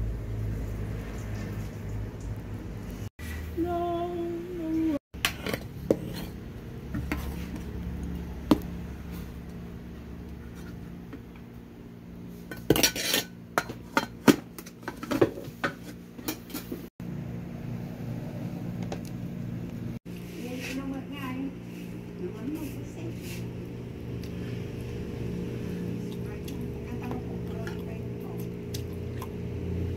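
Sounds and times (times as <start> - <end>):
metal utensils clinking on pot: 12.5 - 14.4.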